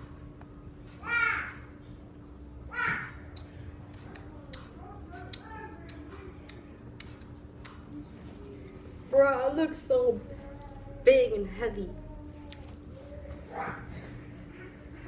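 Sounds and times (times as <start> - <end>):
low hum: 0.0 - 15.0
faint voices: 3.0 - 15.0.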